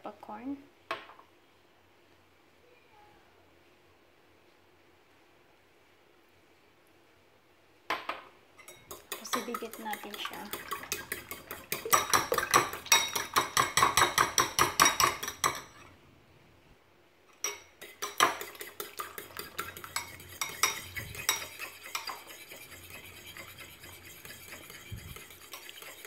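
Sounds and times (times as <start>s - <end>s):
fork whisking eggs in bowl: 8.6s - 15.9s, 17.4s - 26.0s.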